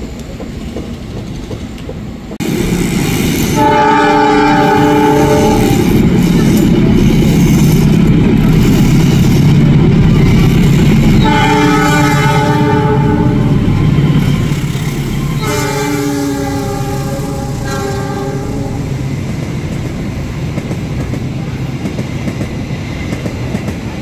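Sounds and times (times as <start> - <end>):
train coaches rolling past: 0.0 - 24.0
locomotive engine running: 0.1 - 24.0
train horn blasts: 3.5 - 6.4, 11.1 - 13.8, 15.3 - 19.0.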